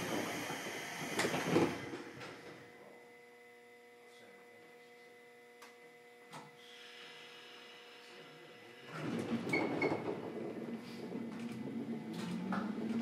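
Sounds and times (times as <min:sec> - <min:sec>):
air hissing from door engines: 0:00.0 - 0:02.6, 0:06.6 - 0:09.2
electrical equipment humming: 0:00.0 - 0:13.0.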